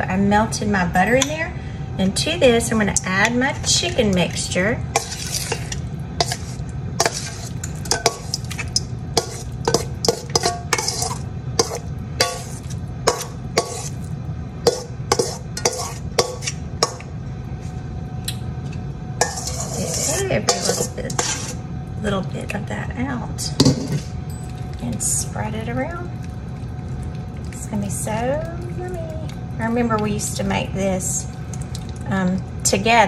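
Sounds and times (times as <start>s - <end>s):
utensil scraping a metal bowl: 3.5s - 17.0s, 19.2s - 21.6s.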